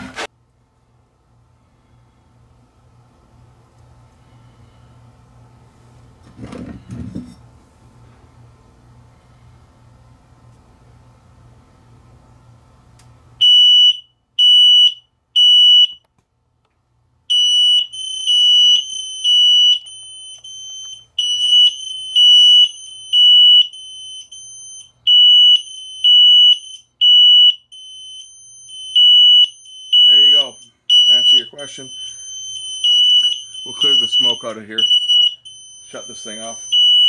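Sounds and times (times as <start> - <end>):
smoke alarm beeping: 13.4 - 16.1, 17.3 - 37.0
second higher-pitched alarm: 17.3 - 37.0.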